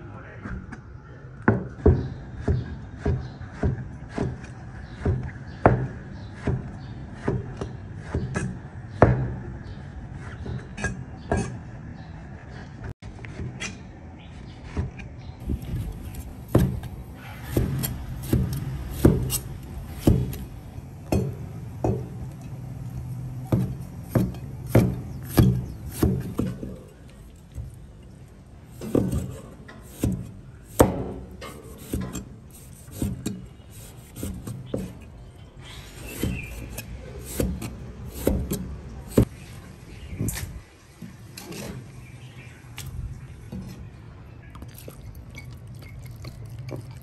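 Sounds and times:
knife chopping on wooden board: 0:15.5 - 0:16.9, 0:17.5 - 0:22.2, 0:23.5 - 0:26.7, 0:28.8 - 0:35.0, 0:36.1 - 0:39.3.

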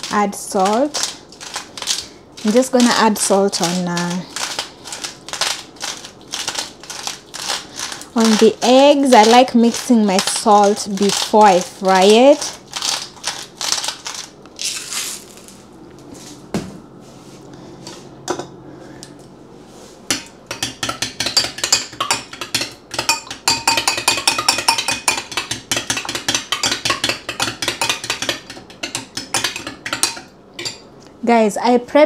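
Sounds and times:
eggs beaten in bowl clinking: 0:00.0 - 0:14.2, 0:20.1 - 0:30.9.

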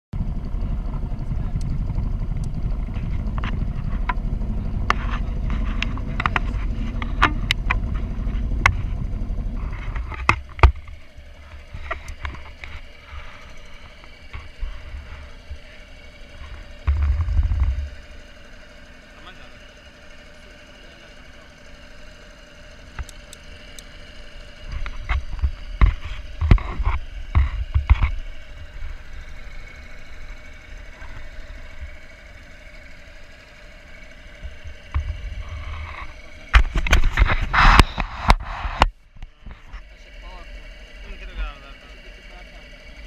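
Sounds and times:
outboard motor humming: 0:00.1 - 0:43.0
low rumbling with sharp knocks: 0:00.2 - 0:18.8, 0:21.8 - 0:39.9.

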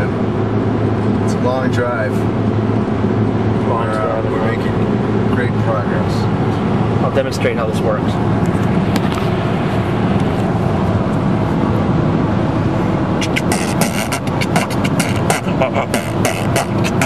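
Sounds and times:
car road and engine noise: 0:00.0 - 0:17.0
beatboxing clicks and pops: 0:13.2 - 0:17.0.

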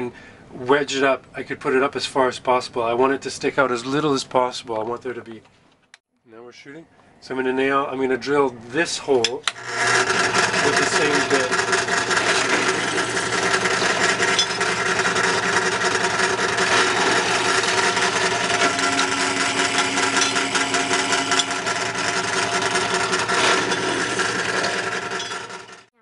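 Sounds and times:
drill bit cutting metal: 0:09.5 - 0:25.9
drill press motor running: 0:09.5 - 0:26.0.

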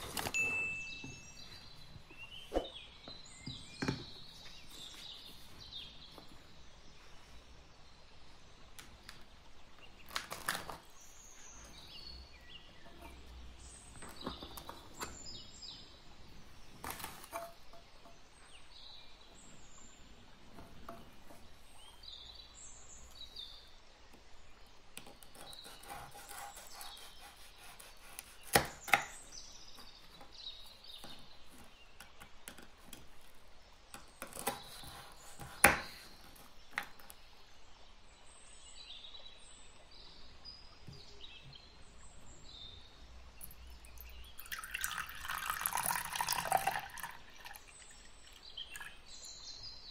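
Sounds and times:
birds chirping: 0:00.0 - 0:49.9
biscuits snapping on wooden board: 0:28.2 - 0:29.2, 0:33.9 - 0:37.2.

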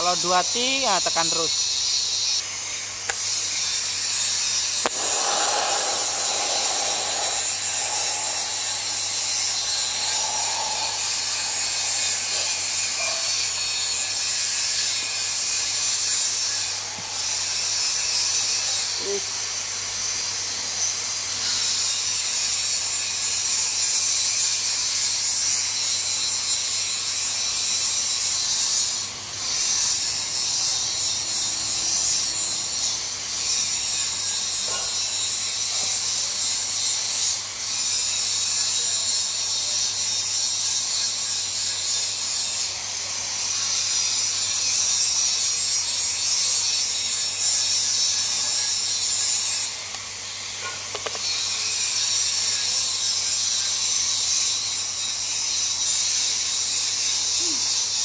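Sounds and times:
welding arc hissing: 0:03.1 - 0:19.8
low hum: 0:04.9 - 0:14.2.

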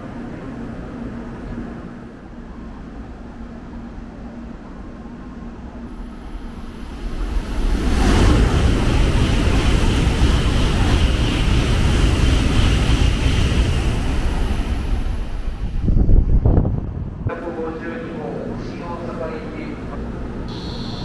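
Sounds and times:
train rushing past: 0:00.0 - 0:21.0
high hiss: 0:05.9 - 0:11.2, 0:20.5 - 0:21.0.

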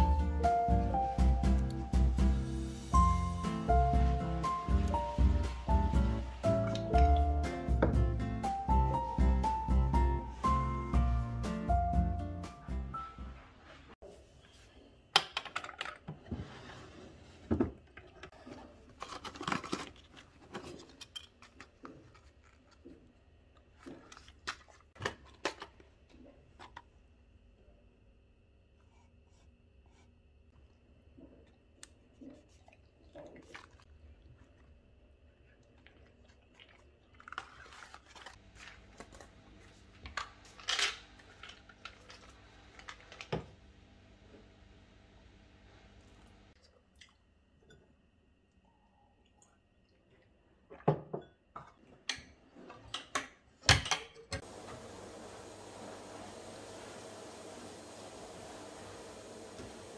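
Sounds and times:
boxes and bottles rustling: 0:15.8 - 0:23.1.

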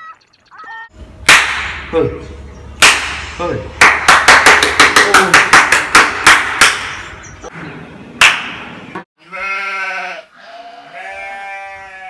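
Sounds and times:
hand claps: 0:02.8 - 0:07.1, 0:08.2 - 0:08.6.

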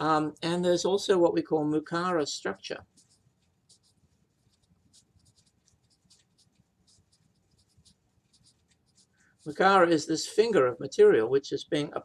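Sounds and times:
pen writing on paper: 0:02.8 - 0:09.6.

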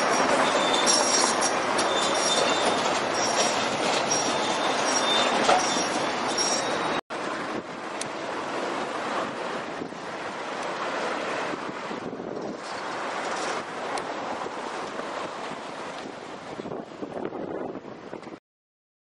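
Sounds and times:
high squeals: 0:00.0 - 0:07.0
street noise: 0:00.0 - 0:18.4
truck road noise and rattling: 0:00.0 - 0:18.4
wind on microphone: 0:08.9 - 0:18.4.

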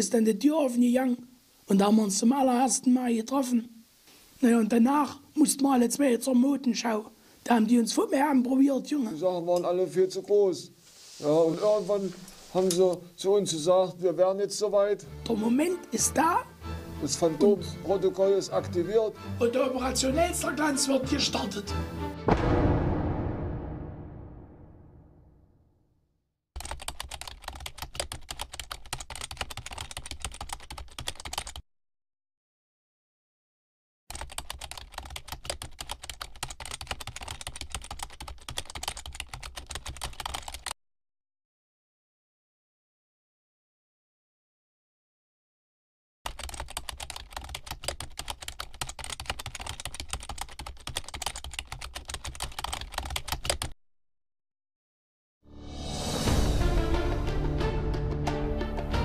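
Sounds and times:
fast keyboard typing: 0:26.6 - 0:31.6, 0:34.1 - 0:40.8, 0:46.3 - 0:53.8
keyboard typing clicks: 0:46.3 - 0:53.7.

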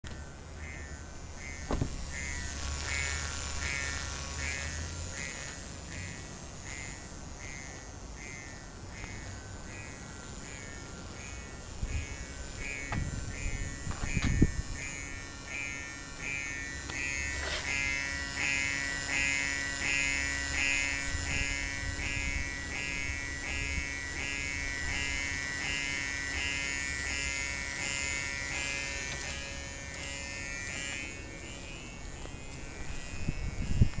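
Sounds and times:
electric pump buzzing: 0:00.0 - 0:34.0
sharp knocks: 0:01.6 - 0:02.1.

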